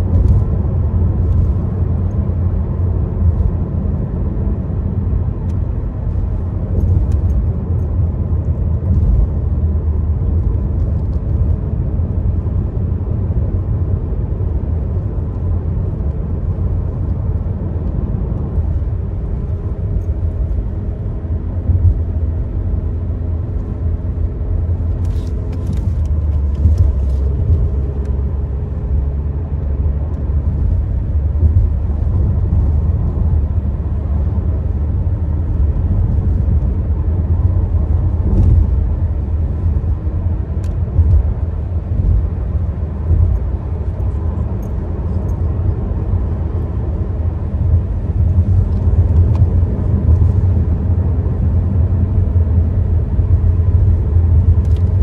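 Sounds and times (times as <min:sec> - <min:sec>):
car engine and tyres rumbling: 0:00.0 - 0:55.0
faint engine hum: 0:00.0 - 0:55.0.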